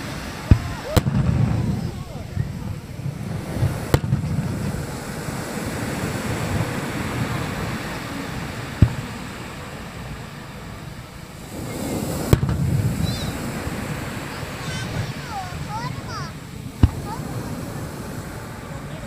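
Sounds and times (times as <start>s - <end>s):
firework shells bursting: 0.0s - 5.5s, 11.6s - 17.2s
surf: 0.0s - 19.0s
wind noise: 0.0s - 19.0s.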